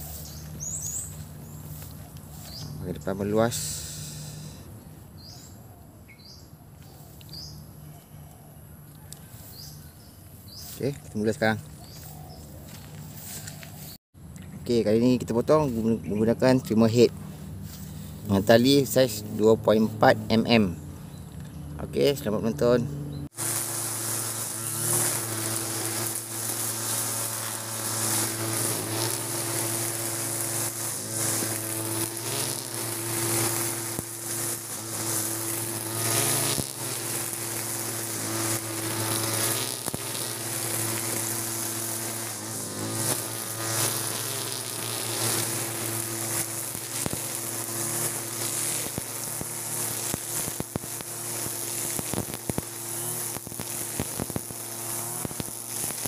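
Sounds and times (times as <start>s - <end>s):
brush cutter engine running: 0.0s - 4.7s, 8.9s - 56.0s
trimmer line whipping grass: 0.0s - 5.3s, 9.0s - 21.2s, 21.8s - 56.0s.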